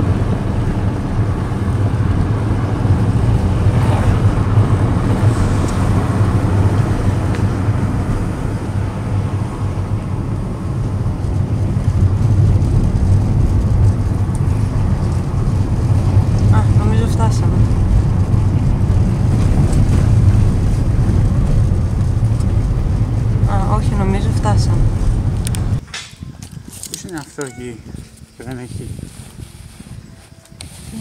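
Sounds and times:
car engine and tyre rumble: 0.0s - 31.0s.

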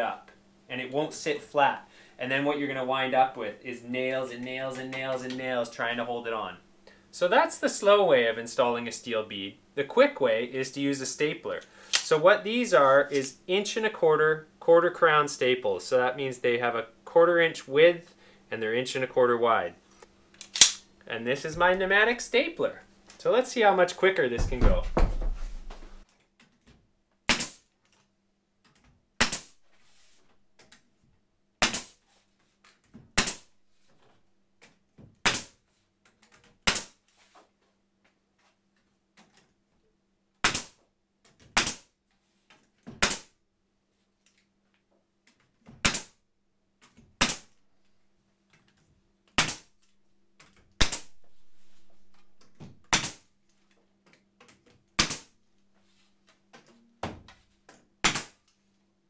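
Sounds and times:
pneumatic stapler shots: 20.5s - 20.8s, 27.3s - 27.7s, 29.2s - 29.5s, 31.6s - 32.0s, 33.2s - 33.5s, 36.6s - 37.0s, 40.4s - 40.8s, 41.6s - 41.9s, 43.0s - 43.3s, 45.8s - 46.2s, 47.2s - 47.5s, 49.4s - 49.7s, 52.9s - 53.2s, 55.0s - 55.3s, 58.0s - 58.4s.

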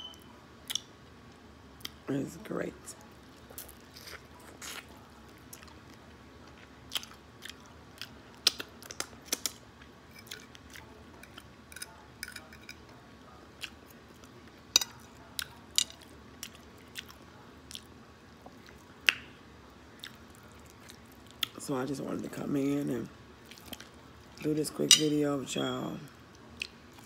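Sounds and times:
wet chewing: 3.4s - 12.7s, 23.4s - 24.5s.

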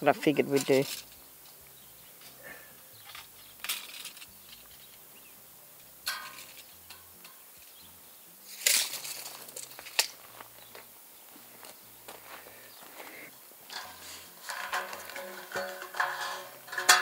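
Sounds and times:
footsteps: 8.6s - 17.0s.

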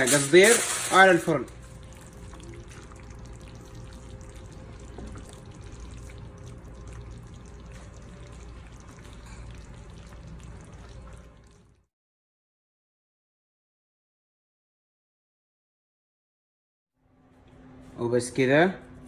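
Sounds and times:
kitchen room hum and hiss: 0.0s - 11.8s, 17.0s - 19.0s.

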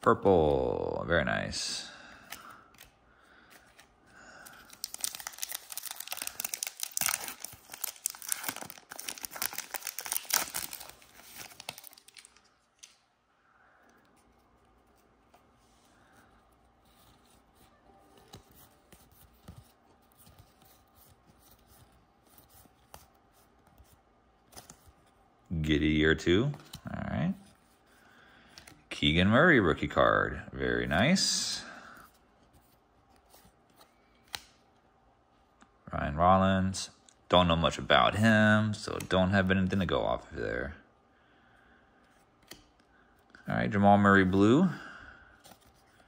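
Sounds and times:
cards being handled: 2.1s - 13.1s, 13.8s - 25.2s, 26.4s - 28.9s, 32.0s - 34.8s, 42.0s - 43.4s, 45.3s - 46.0s
plastic wrapper tearing and crinkling: 4.6s - 13.0s.

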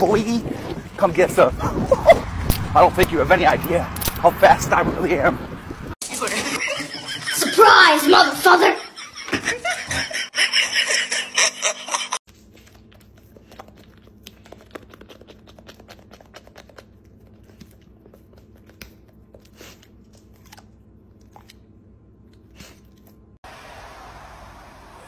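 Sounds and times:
dog chewing crunchy treat: 12.4s - 23.2s.

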